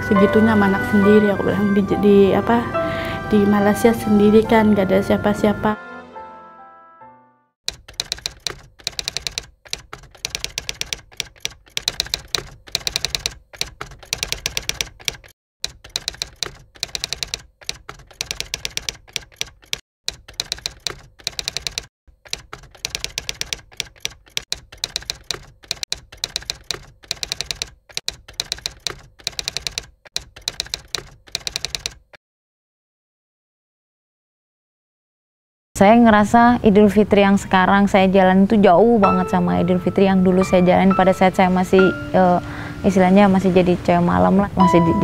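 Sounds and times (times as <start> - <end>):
typewriter keys typing: 7.7 - 32.2.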